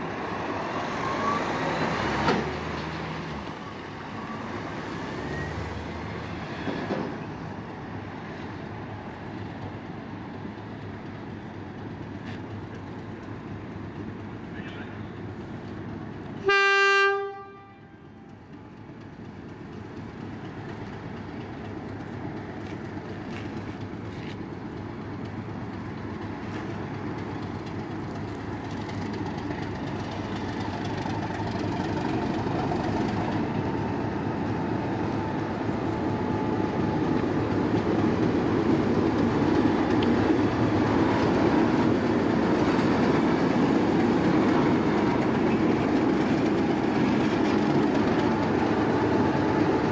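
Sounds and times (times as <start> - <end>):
diesel locomotive passing: 0.0 - 49.9
train horn blast: 16.4 - 18.1.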